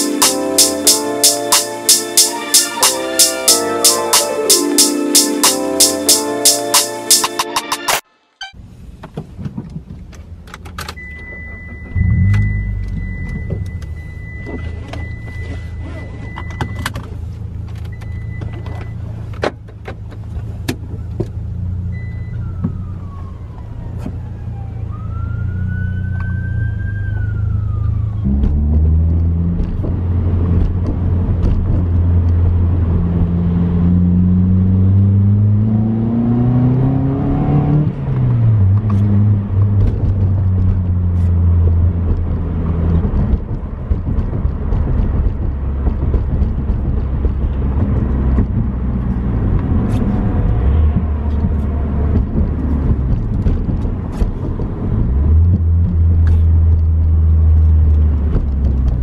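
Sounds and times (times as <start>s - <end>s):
road noise: 0.0s - 59.0s
car engine accelerating: 11.0s - 19.3s, 20.0s - 59.0s.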